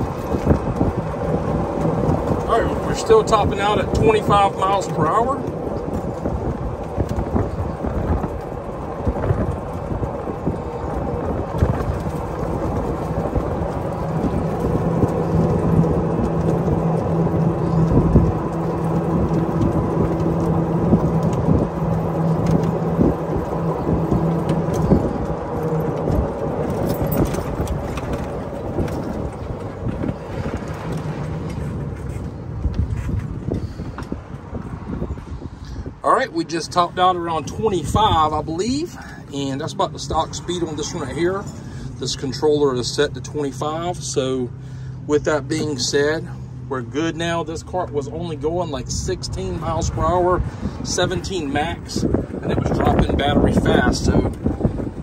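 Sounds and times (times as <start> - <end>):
steady low hum: 0.0 - 36.4
road rumble with chassis rattles: 0.0 - 55.0
wind rumble on microphone: 0.0 - 55.0.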